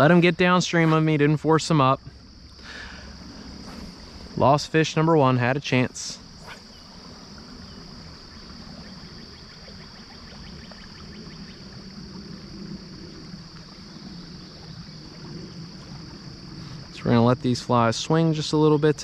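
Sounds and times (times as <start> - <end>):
high-pitched hiss: 0.0 - 9.8.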